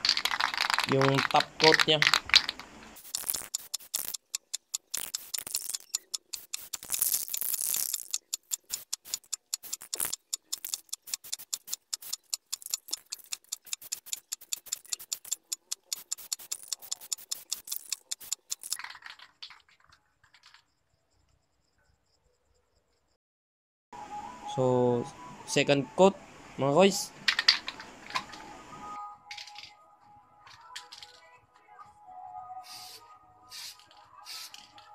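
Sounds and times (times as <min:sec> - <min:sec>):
spray can ball clacking: 0:00.0 - 0:20.6, 0:27.3 - 0:28.4, 0:32.7 - 0:34.9
spray can hissing: 0:02.4 - 0:18.8, 0:32.6 - 0:34.7.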